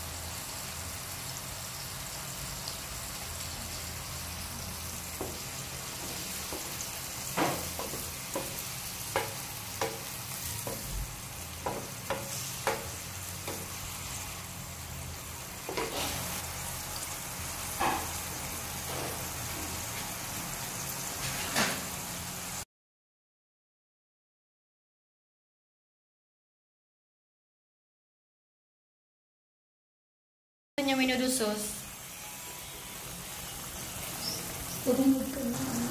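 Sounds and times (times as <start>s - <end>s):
meat sizzling in a pan: 0.0s - 22.6s, 30.9s - 35.9s
wooden spatula scraping a pan: 5.1s - 11.0s, 15.6s - 16.4s.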